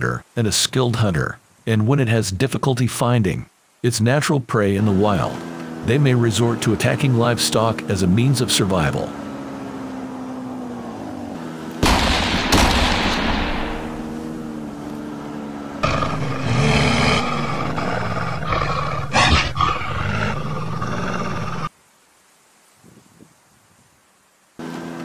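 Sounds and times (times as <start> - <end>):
snowmobile engine revving: 4.8 - 21.7, 24.6 - 25.0
sharp cracks: 11.7 - 14.4.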